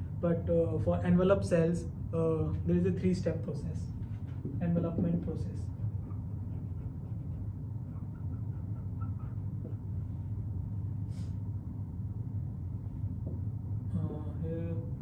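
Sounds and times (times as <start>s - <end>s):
low room hum: 0.0s - 15.0s
marker squeaking on whiteboard: 5.7s - 10.2s.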